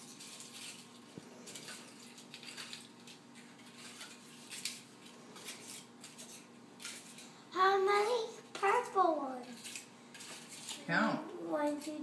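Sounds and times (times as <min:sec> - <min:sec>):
paper liners rustling: 0:00.0 - 0:07.3.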